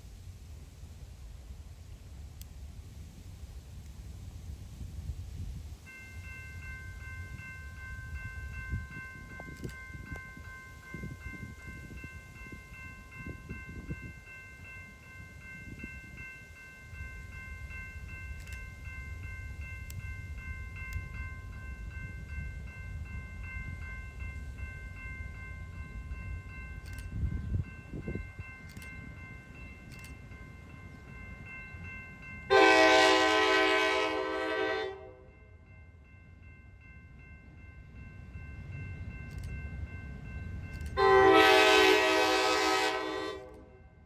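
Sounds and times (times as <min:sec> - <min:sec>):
crossing bell ringing: 0:05.9 - 0:44.0
locomotive horn blast: 0:32.5 - 0:35.3, 0:41.0 - 0:43.8.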